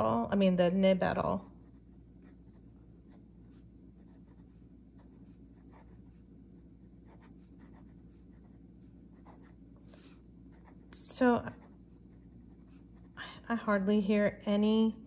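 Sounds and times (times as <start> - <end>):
fountain pen scratching on paper: 4.0 - 6.2, 7.0 - 13.2.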